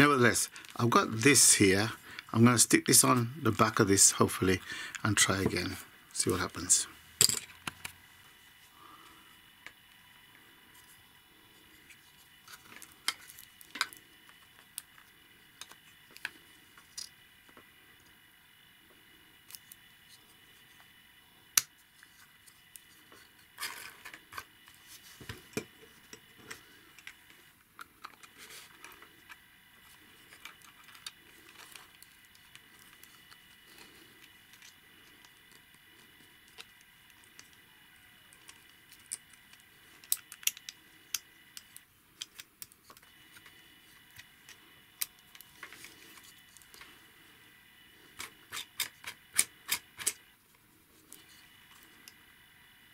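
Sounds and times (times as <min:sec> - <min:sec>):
plastic parts clicking: 0:38.3 - 0:43.5.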